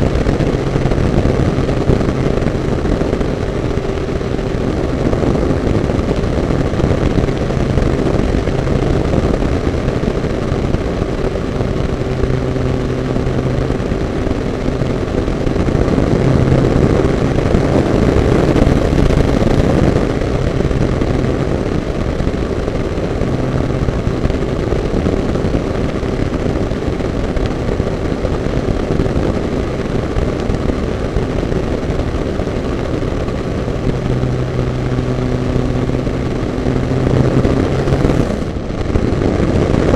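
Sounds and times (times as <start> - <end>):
model airplane motor and propeller: 0.0 - 39.9
rush of air: 31.2 - 39.9.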